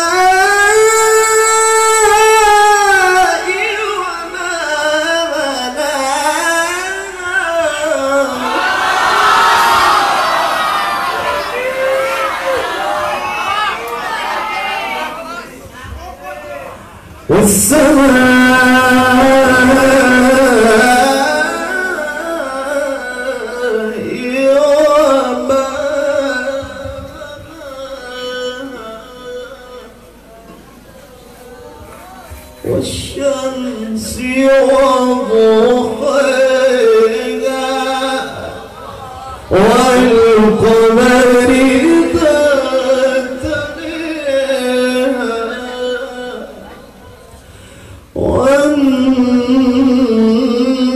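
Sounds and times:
man reciting melodically: 0.0s - 8.8s, 16.0s - 30.4s, 32.5s - 50.9s.

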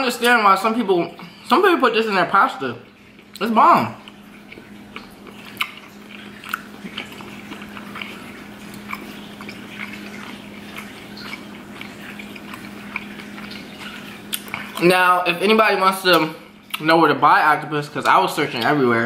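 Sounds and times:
steady low hum: 0.0s - 19.0s
wet chewing with mouth clicks: 2.5s - 17.0s.

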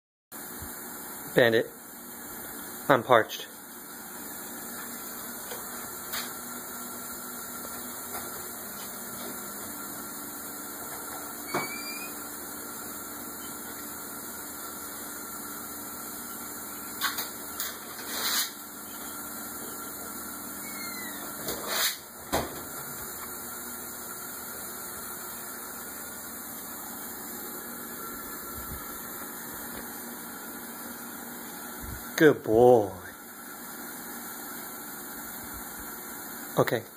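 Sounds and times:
short squeak: 11.5s - 12.2s, 20.6s - 22.0s.

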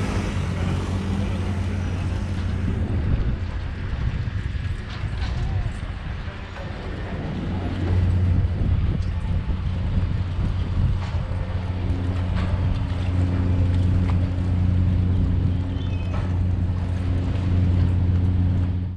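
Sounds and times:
ferry engine droning: 0.0s - 18.9s
water noise: 0.0s - 18.9s
wind: 0.0s - 18.9s.

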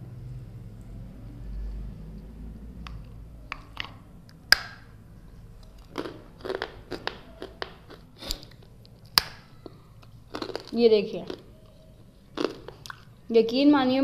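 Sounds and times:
brittle candy cracking: 2.8s - 13.3s
small crunches and taps: 5.6s - 11.8s.

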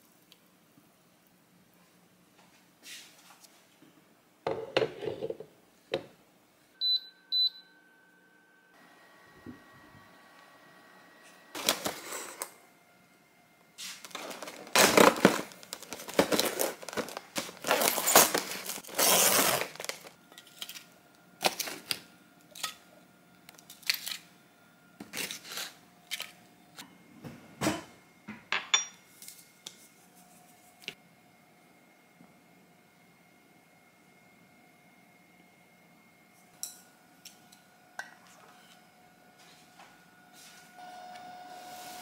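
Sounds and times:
plastic wrap crinkling: 11.6s - 12.5s, 13.9s - 22.0s
plastic wrap tearing: 11.6s - 12.5s, 14.0s - 22.0s.

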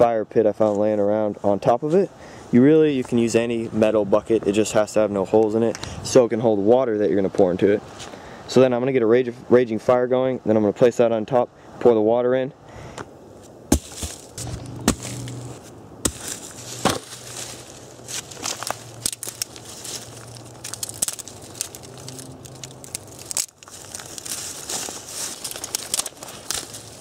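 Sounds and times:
footsteps on dry pine needles: 13.4s - 27.0s
twigs crackling and snapping: 13.7s - 27.0s.

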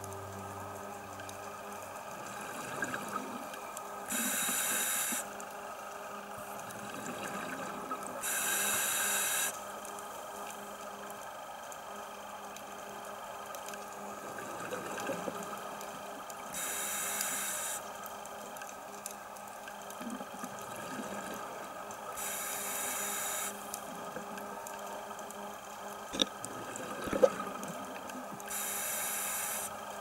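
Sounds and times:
steady underwater hum: 0.0s - 30.0s
regulator bubbles rushing: 26.2s - 28.4s.

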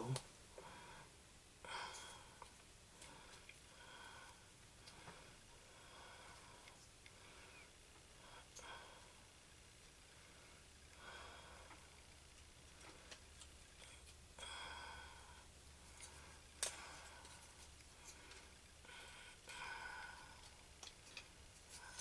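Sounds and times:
soft breathing: 0.5s - 22.0s.

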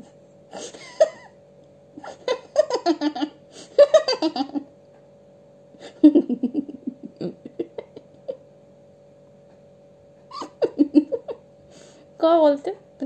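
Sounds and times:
faint steady hum: 0.0s - 13.0s
woman giggling: 0.6s - 1.3s, 2.0s - 4.7s, 5.8s - 8.5s, 10.3s - 11.4s.

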